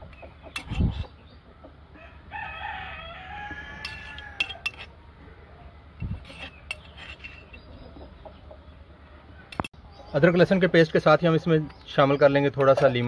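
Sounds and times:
rooster crowing: 2.0s - 4.7s.

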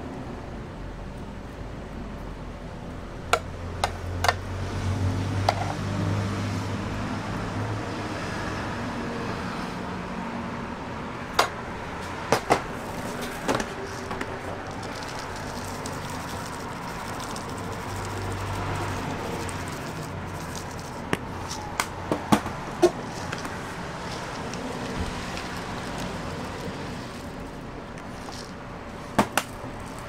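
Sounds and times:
steady background hum: 10.5s - 30.0s
utensils clicking and tapping: 12.3s - 30.0s.

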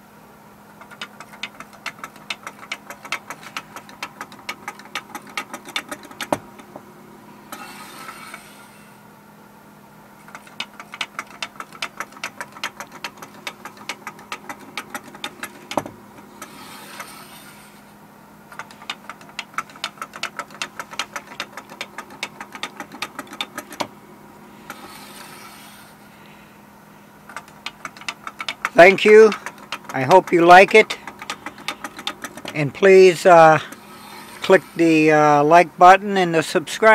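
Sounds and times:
wooden toy legs clacking: 0.8s - 6.8s, 10.3s - 17.8s, 18.5s - 23.9s, 24.6s - 25.9s, 27.3s - 34.8s.

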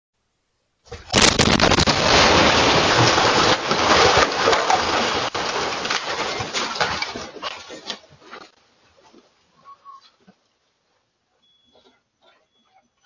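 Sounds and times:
debris clicking and knocking: 0.9s - 8.6s.

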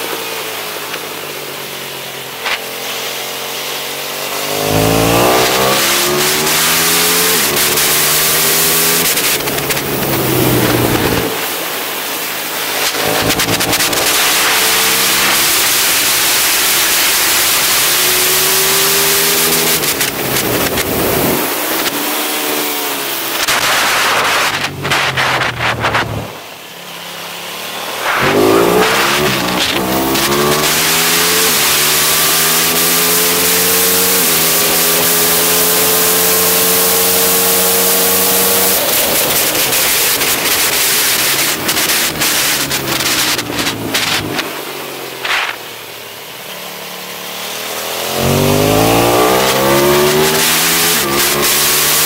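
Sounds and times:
motorcycle engine revving: 0.0s - 52.0s
wind rush: 9.4s - 11.7s, 23.5s - 26.5s.

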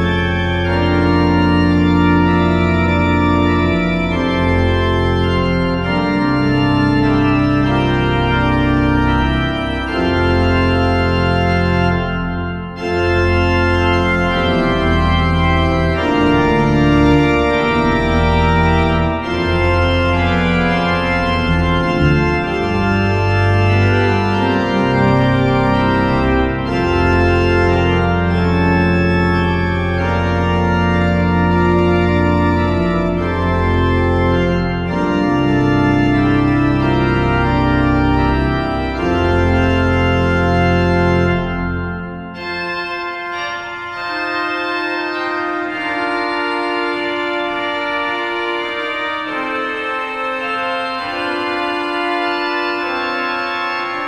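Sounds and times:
organ pedal bass notes: 0.0s - 54.0s
pipe organ chords: 0.0s - 54.0s.

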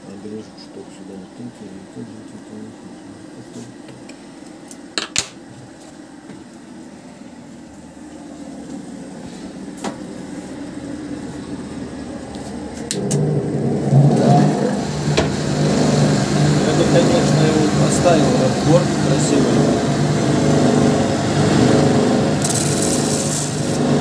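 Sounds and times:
machine motor humming: 7.8s - 24.0s.

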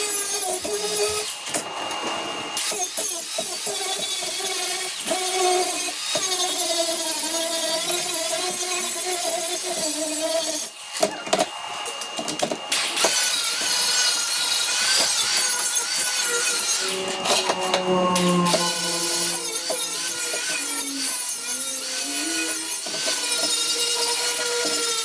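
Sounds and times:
angle grinder on metal: 0.0s - 1.7s, 2.6s - 25.0s.

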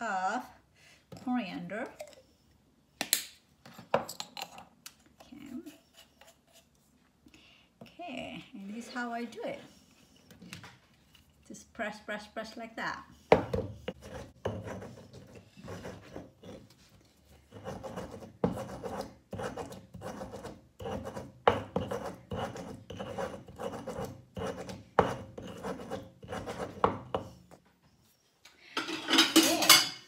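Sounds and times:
stone pestle grinding in mortar: 13.3s - 16.6s, 17.5s - 27.4s.

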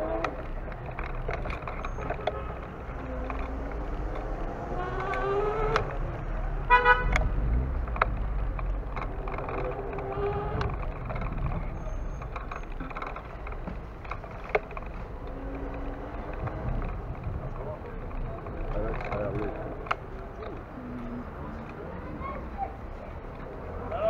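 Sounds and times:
street traffic: 0.0s - 24.0s
vehicle engine rising in pitch: 3.0s - 6.5s.

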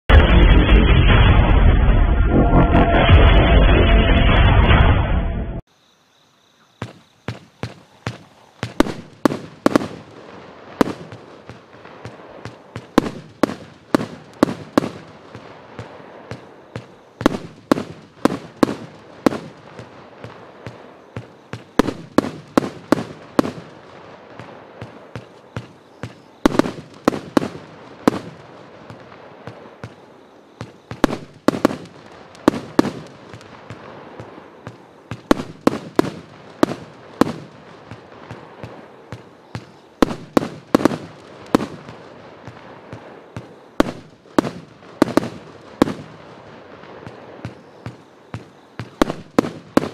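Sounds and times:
steady hiss: 5.7s - 49.9s
fireworks barrage shots: 6.8s - 49.9s.

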